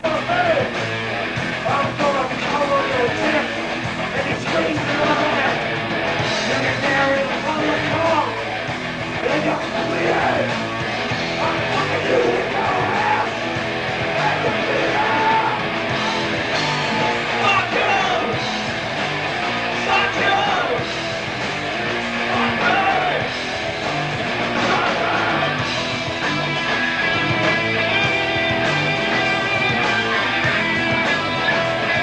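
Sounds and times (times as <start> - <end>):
punk rock band playing live: 0.0 - 32.0
person singing: 11.4 - 13.4, 14.2 - 15.8, 16.8 - 18.4, 22.3 - 23.3.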